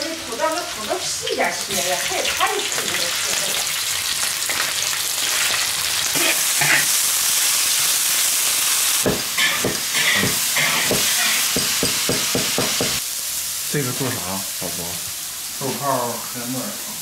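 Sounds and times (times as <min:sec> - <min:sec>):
meat sizzling in hot oil: 0:00.0 - 0:17.0
metal spatula stirring in wok: 0:09.2 - 0:12.8.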